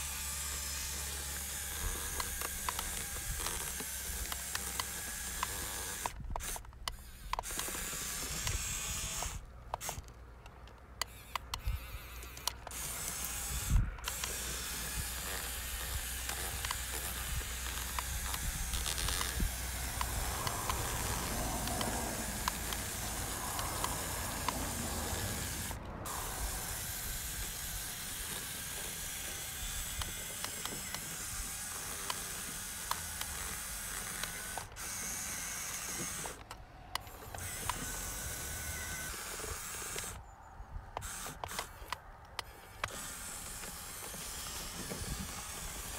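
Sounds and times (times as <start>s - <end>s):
electric motor and gearbox whirring: 0.0s - 45.9s
small clicks: 0.9s - 8.6s, 9.2s - 26.0s, 27.4s - 40.2s, 40.9s - 45.9s.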